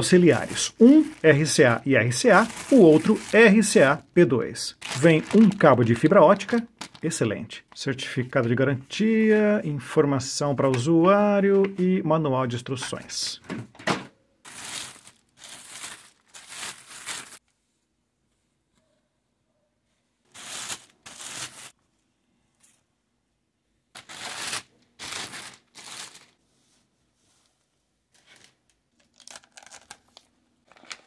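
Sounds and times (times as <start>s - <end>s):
plastic bags rustling: 0.0s - 4.0s, 4.7s - 7.8s, 14.5s - 17.4s, 20.3s - 21.7s, 24.0s - 26.4s, 28.2s - 31.0s
plastic crinkling: 0.3s - 3.9s, 4.7s - 7.8s, 14.5s - 17.4s, 24.0s - 26.4s, 28.2s - 31.0s.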